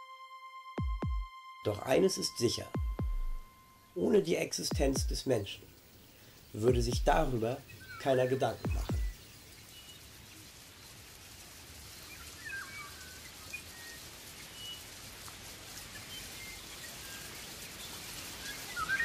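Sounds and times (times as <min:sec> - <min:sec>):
bird chirps: 0:01.7 - 0:10.3, 0:12.0 - 0:14.9, 0:15.9 - 0:19.0
steady hiss: 0:01.7 - 0:19.0.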